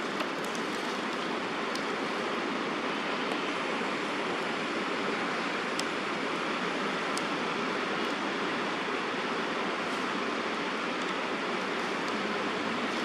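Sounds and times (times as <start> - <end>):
steady rain: 0.0 - 13.0
raindrop ticks: 5.7 - 6.0.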